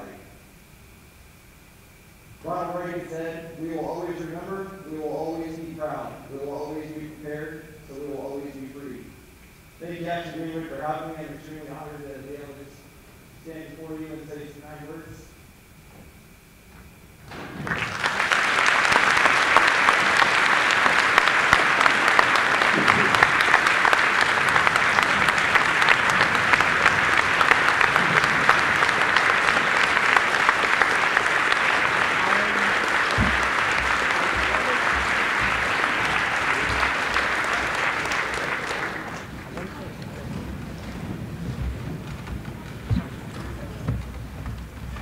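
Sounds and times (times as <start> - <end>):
audience applauding: 17.3 - 45.0.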